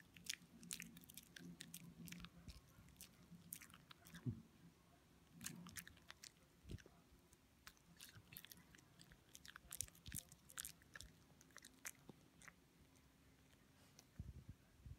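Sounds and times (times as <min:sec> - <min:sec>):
dog chewing crunches: 0:00.0 - 0:04.3, 0:05.3 - 0:06.9, 0:07.6 - 0:13.6.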